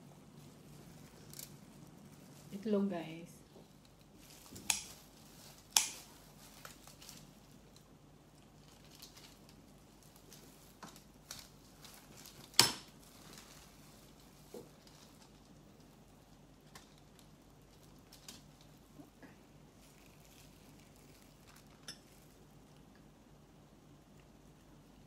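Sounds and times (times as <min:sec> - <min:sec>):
small clicks and rustles: 0:03.4 - 0:23.1.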